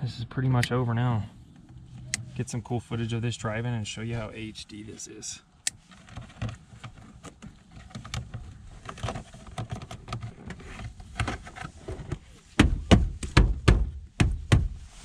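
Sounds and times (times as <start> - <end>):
heavy knocks on plastic panel: 12.6 - 14.8.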